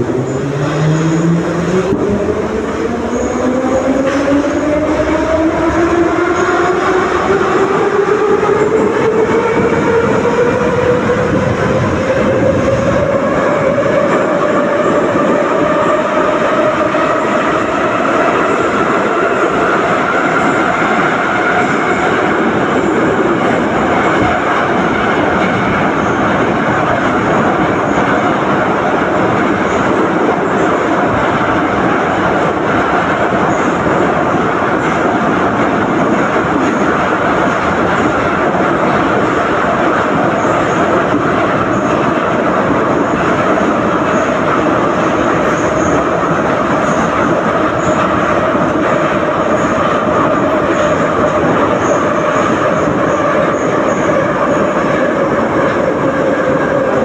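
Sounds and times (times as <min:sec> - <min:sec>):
wheel and tunnel rumble: 0:00.0 - 0:57.0.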